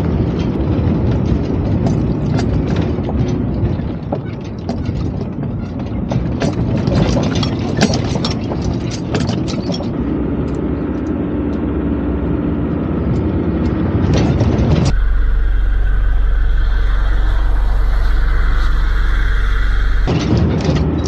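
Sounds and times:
off-road vehicle engine: 0:00.0 - 0:21.0
steady even hum: 0:14.9 - 0:20.4.

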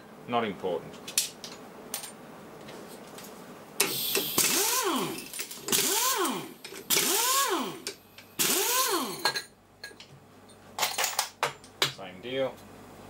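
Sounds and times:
exhaust air hiss: 0:03.8 - 0:09.1
pneumatic impact wrench: 0:03.8 - 0:09.3.

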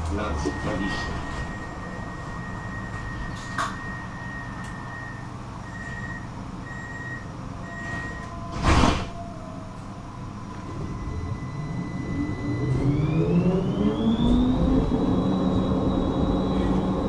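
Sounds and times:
tram doors closing: 0:00.0 - 0:17.0
high warning beeps: 0:00.1 - 0:08.3.

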